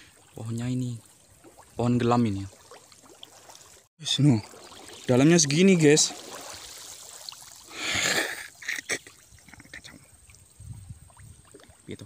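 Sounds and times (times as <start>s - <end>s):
water sloshing and splashing: 0.0s - 9.6s
small water drips: 0.0s - 12.0s.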